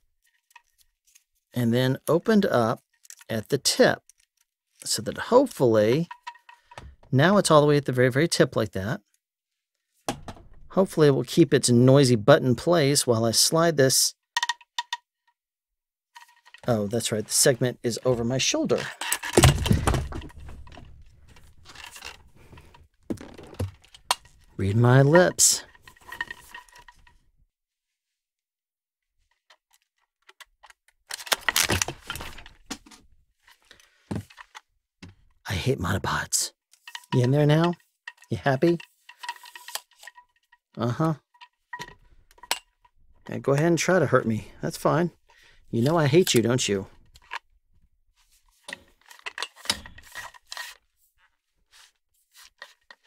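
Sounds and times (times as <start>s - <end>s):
boom pole segments scraping and clicking: 0.2s - 1.3s, 2.8s - 7.6s, 16.2s - 27.2s, 36.1s - 47.4s, 48.2s - 53.0s.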